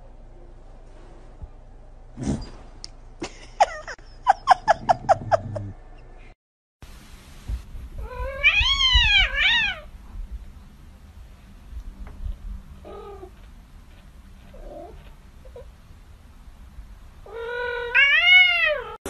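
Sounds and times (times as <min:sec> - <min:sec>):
cat meowing: 0:08.0 - 0:09.9, 0:17.3 - 0:19.0.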